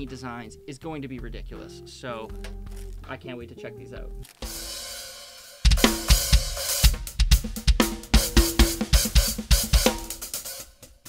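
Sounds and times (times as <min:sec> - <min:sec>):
drum kit groove: 0:00.0 - 0:03.2, 0:04.4 - 0:11.0
hi-hats: 0:04.4 - 0:11.0.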